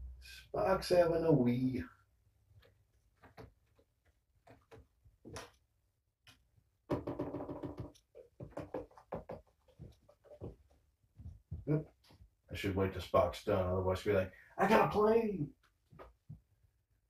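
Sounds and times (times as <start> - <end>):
scratches and taps: 2.6 - 5.5, 7.1 - 12.2.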